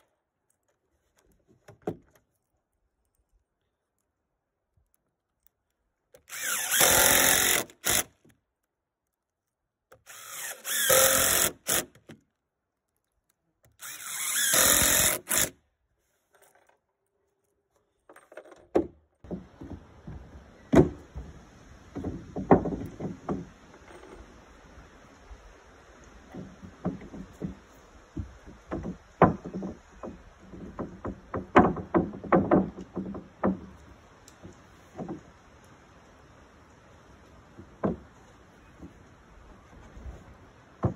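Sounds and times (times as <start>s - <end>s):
cordless driver driving screws: 6.1s - 8.3s, 9.9s - 12.2s, 13.6s - 15.6s
knocks and clicks of boards: 18.4s - 23.9s, 26.2s - 35.5s, 37.5s - 39.1s.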